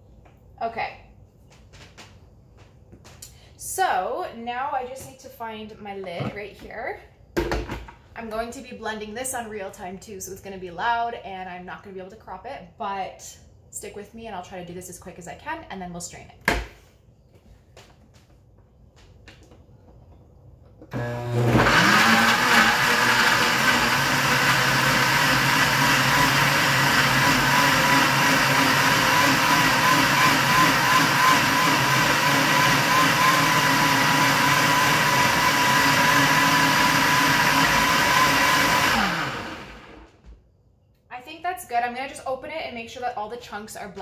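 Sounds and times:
blender motor whining: 20.9 - 40.1.

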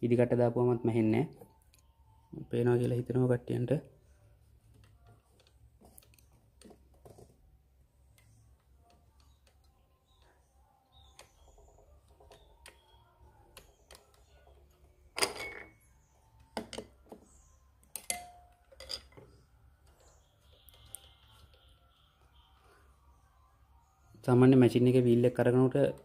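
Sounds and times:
metallic clicks and clinks: 17.9 - 19.3.

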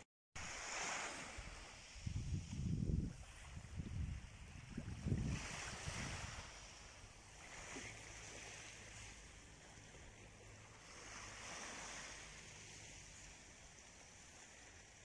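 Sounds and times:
small waves washing on shore: 0.4 - 15.0.

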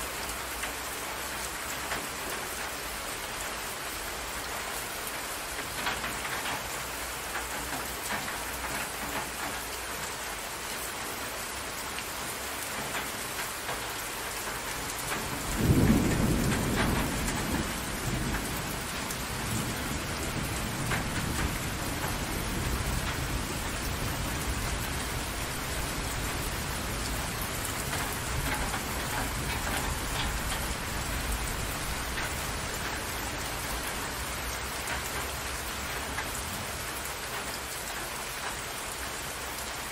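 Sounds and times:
rain falling on water: 0.0 - 39.9
thunder rumbling: 14.8 - 36.8.

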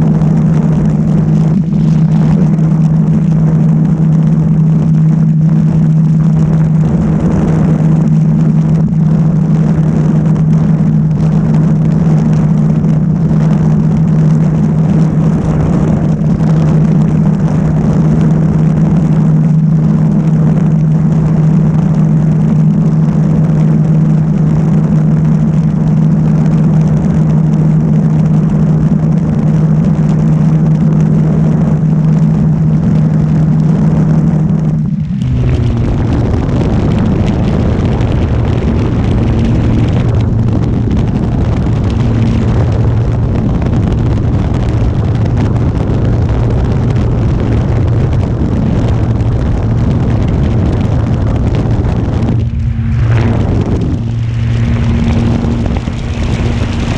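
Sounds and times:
rushing air noise: 0.0 - 56.9.

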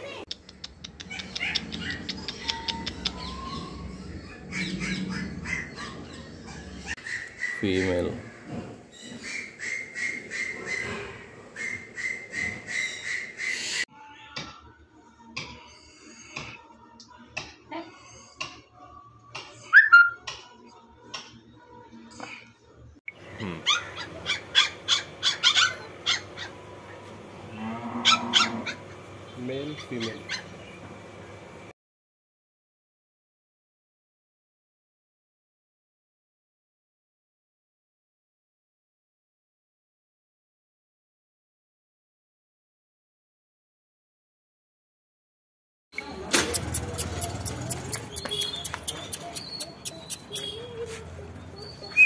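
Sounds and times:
birds squawking and chirping: 0.4 - 13.9, 23.2 - 31.2, 46.0 - 52.0
puppies squealing: 0.9 - 8.2, 9.0 - 13.8, 19.5 - 20.3, 23.4 - 27.0, 46.0 - 52.0.

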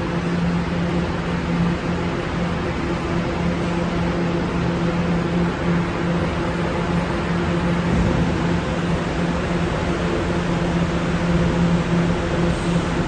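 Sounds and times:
subway train humming: 0.0 - 13.0
station noise hiss: 7.9 - 13.0.

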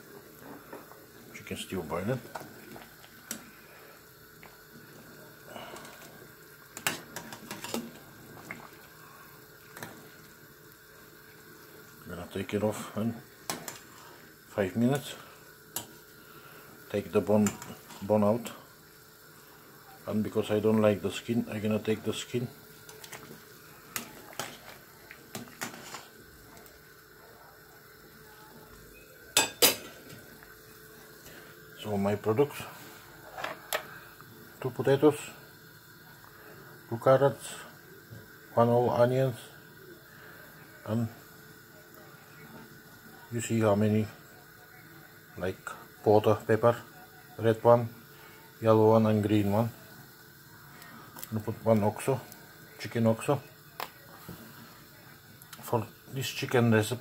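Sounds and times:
stock bubbling at a boil: 0.0 - 32.2.

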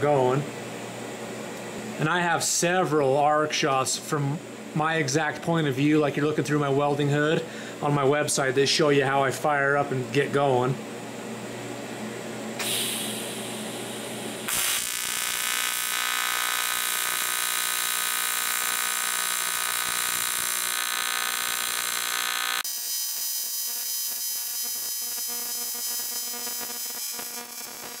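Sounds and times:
welding arc buzzing: 12.6 - 28.0.

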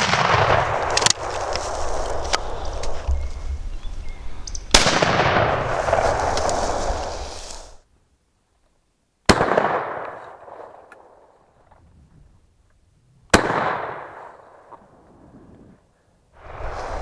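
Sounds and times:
shotgun shots echoing: 0.0 - 1.2, 4.7 - 6.1, 9.3 - 11.3, 13.3 - 14.7.

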